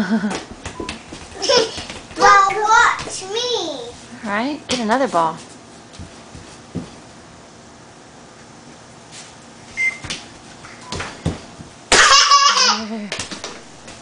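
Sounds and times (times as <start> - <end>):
short high beep: 9.8 - 10.0
ball knocking on hoop and floor: 10.9 - 11.8.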